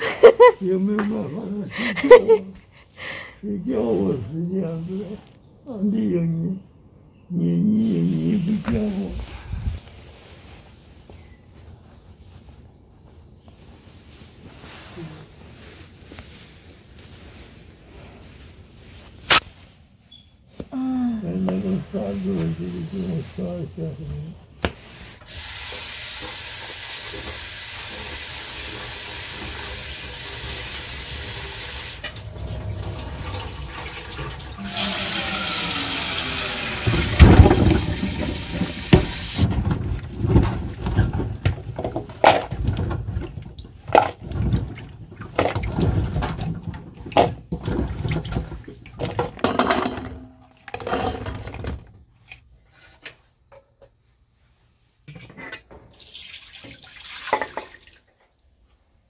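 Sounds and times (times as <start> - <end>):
water splashes: 31.9 - 39.5, 56.0 - 58.2.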